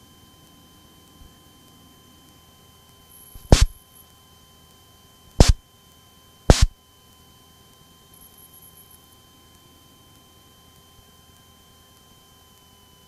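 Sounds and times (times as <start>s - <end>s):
faint electrical whine: 0.0s - 13.0s
loud pops in intercom audio: 3.4s - 3.8s, 5.4s - 5.6s, 6.5s - 6.8s.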